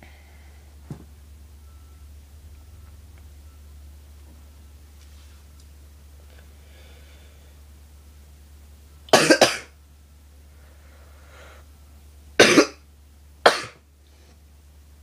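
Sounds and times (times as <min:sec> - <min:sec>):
person coughing harshly: 0:09.1 - 0:09.7, 0:12.4 - 0:12.8, 0:13.4 - 0:13.8.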